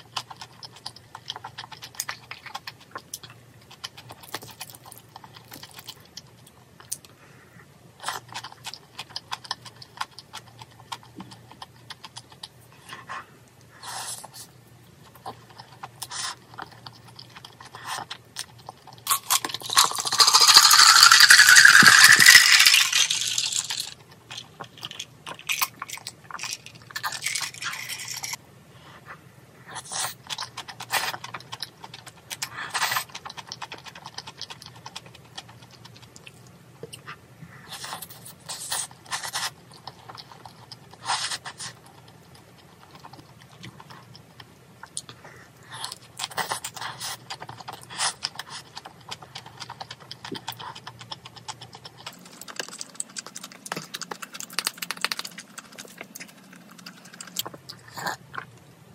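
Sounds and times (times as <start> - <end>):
chewing: 0.0 - 7.2, 8.0 - 58.8
iced tea pouring into cup: 19.6 - 24.0.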